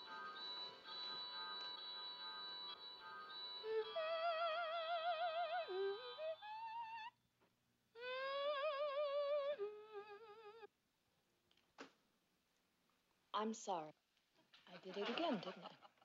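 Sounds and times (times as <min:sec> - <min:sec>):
held instrumental notes: 0:00.0 - 0:07.0.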